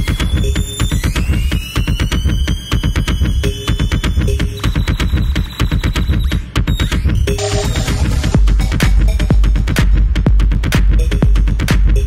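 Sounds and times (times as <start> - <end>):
music with fast beat and heavy bass: 0.0 - 12.0.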